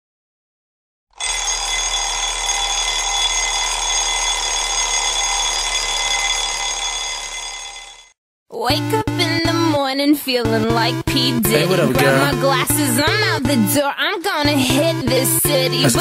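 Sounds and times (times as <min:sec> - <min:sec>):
alarm clock bells ringing: 0:01.2 - 0:08.2.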